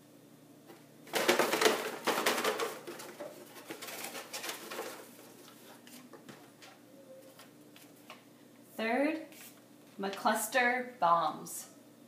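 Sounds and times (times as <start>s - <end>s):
paper slips rattling in a box: 1.1s - 5.5s.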